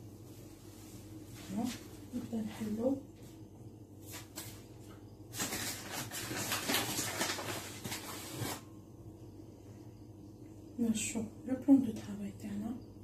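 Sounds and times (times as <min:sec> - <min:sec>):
crackling rustling handling noise: 0:00.0 - 0:08.7.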